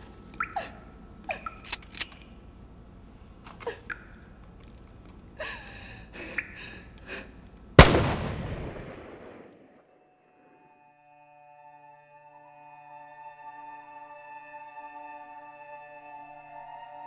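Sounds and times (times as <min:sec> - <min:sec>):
soft sustained music tones: 0:00.0 - 0:07.4, 0:08.8 - 0:17.0
loud blast: 0:07.8 - 0:09.8.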